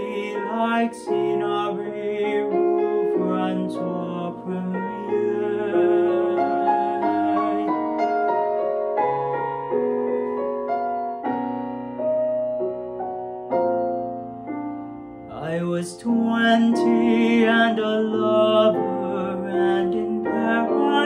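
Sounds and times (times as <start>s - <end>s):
piano accompaniment: 0.0s - 21.0s.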